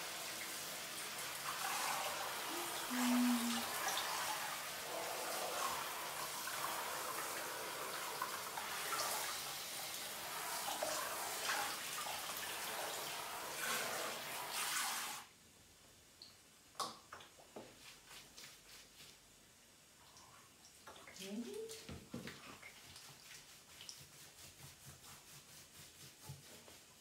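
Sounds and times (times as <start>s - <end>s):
faint water drips: 20.0s - 24.2s.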